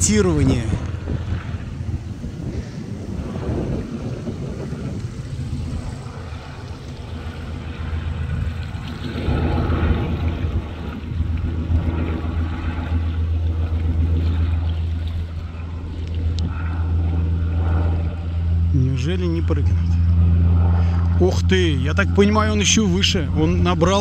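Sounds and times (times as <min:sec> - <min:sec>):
wind noise on microphone: 0:00.0 - 0:18.8
propeller plane engine droning: 0:00.0 - 0:24.0.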